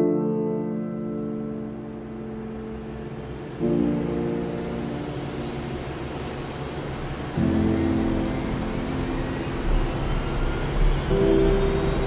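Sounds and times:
jet engines spooling up: 3.0 - 12.0.

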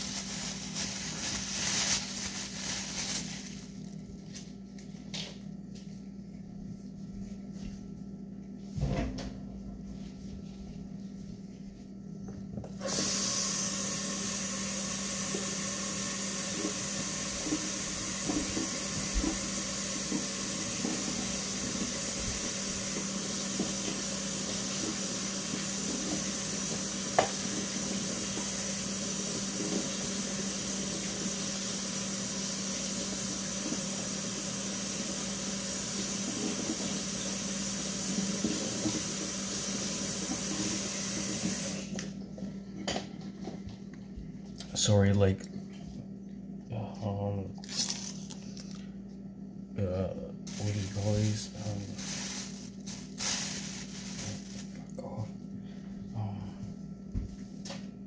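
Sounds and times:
kitchen tap running: 12.8 - 42.0.

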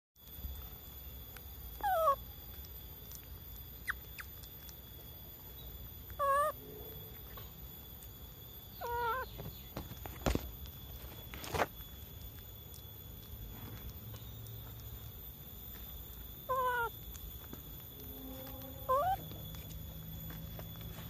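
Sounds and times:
wavering monkey calls: 1.7 - 2.3, 6.1 - 7.4, 8.7 - 9.6, 16.3 - 20.6.

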